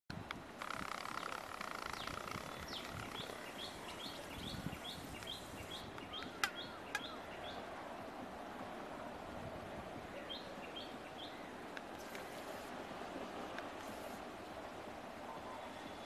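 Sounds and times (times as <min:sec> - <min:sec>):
outdoor background noise: 0:00.1 - 0:16.0
bird calling: 0:00.6 - 0:07.6.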